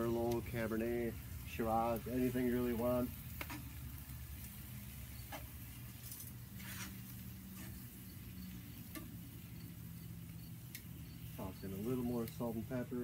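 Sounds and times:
mushrooms simmering: 0.0s - 13.0s
tongs clicking in a pan: 3.3s - 3.8s, 8.7s - 11.2s.

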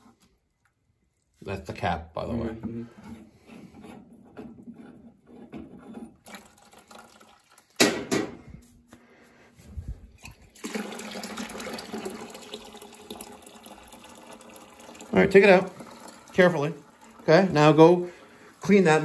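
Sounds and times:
water pouring into plastic bucket: 6.1s - 7.9s, 10.2s - 18.8s.

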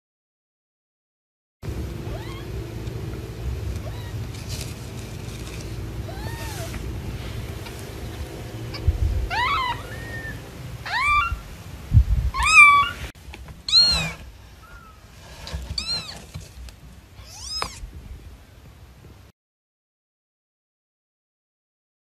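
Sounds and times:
kitten mewing: 2.1s - 2.6s, 3.8s - 4.4s, 6.0s - 6.9s, 8.7s - 11.5s, 12.3s - 13.1s, 13.7s - 15.0s, 15.6s - 16.4s, 17.2s - 17.9s.

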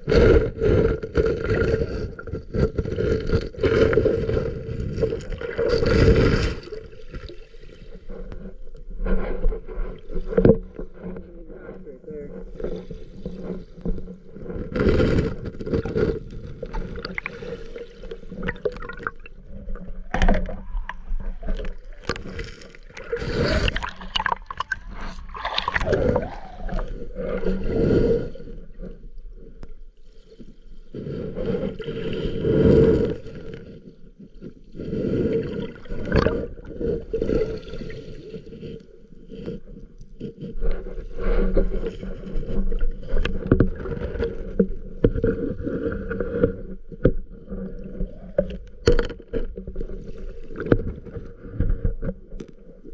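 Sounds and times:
water surging and gurgling: 14.5s - 28.3s, 34.9s - 38.8s.

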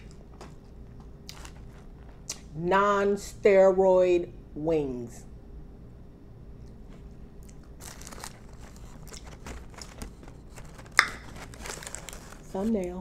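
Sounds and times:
crunching fried chicken: 0.0s - 2.5s, 7.4s - 12.8s
paper liner crackling: 1.2s - 2.2s, 7.7s - 13.0s.

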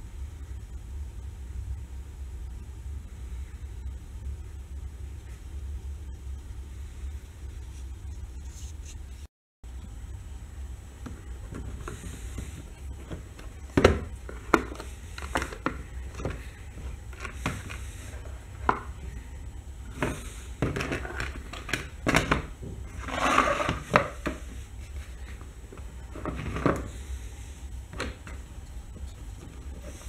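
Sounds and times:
rustling scrape: 22.9s - 25.4s.

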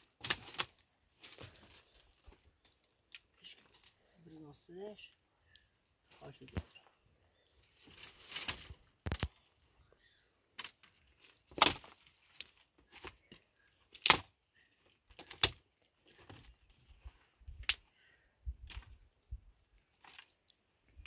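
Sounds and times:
dry branches snapping: 0.0s - 3.9s, 7.8s - 9.4s, 10.6s - 14.4s, 15.1s - 15.6s, 17.6s - 17.9s
twigs rustling: 0.0s - 4.1s, 4.9s - 21.0s.

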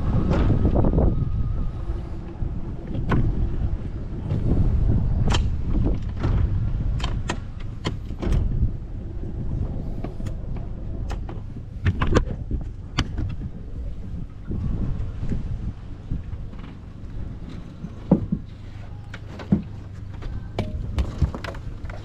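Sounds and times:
low rumble: 0.0s - 22.0s
sharp knocks on aluminium boat: 18.0s - 18.6s.

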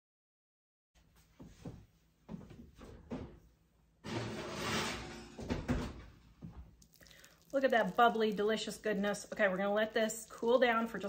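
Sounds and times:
baking dish sliding into oven: 4.0s - 6.0s
oven door opening: 4.0s - 6.1s.

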